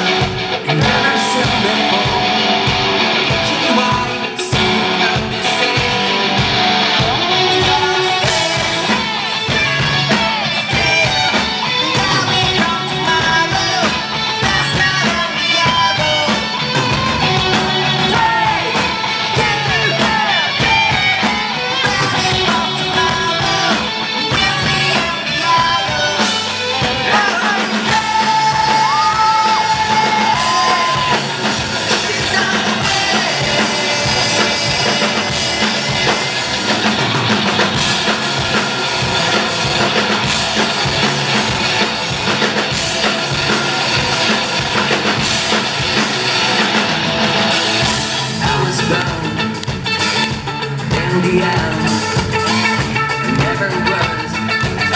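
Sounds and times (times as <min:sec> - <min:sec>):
man singing lead vocal: 0:00.0 - 0:46.0, 0:47.6 - 0:54.9
live rock band playing: 0:00.0 - 0:54.9.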